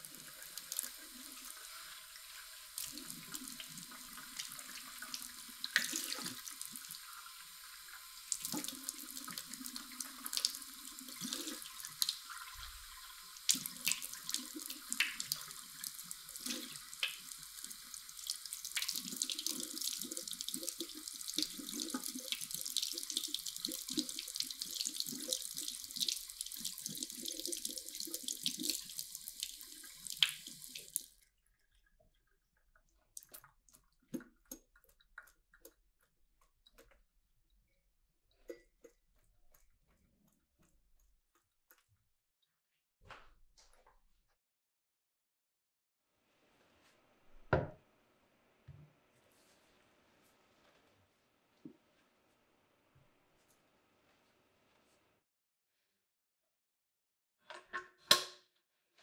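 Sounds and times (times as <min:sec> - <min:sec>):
tap water running into sink: 0:00.0 - 0:36.5
water splashing over filter: 0:00.0 - 0:37.0.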